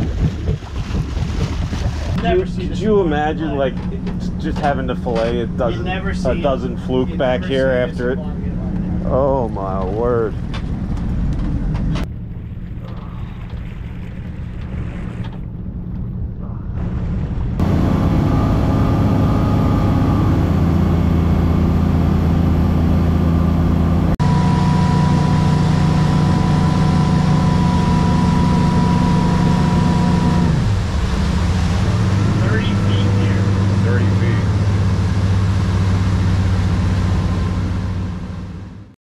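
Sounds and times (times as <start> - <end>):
wind and water rushing: 0.0 - 3.1, 25.0 - 38.4
motorboat engine droning: 0.0 - 39.0
high-pitched whine: 24.2 - 30.8.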